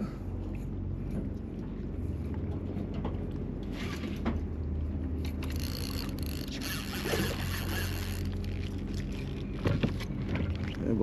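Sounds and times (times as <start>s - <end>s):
low engine drone: 0.0s - 11.0s
fishing reel cranking: 5.3s - 8.7s.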